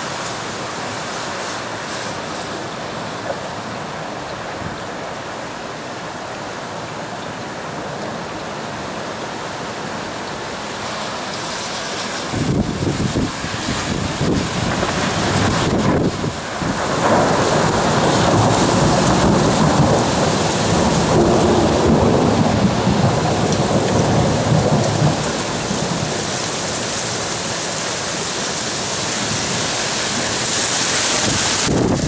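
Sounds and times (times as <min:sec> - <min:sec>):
steady rain: 0:00.0 - 0:32.0
rumble of thunder: 0:12.4 - 0:26.3.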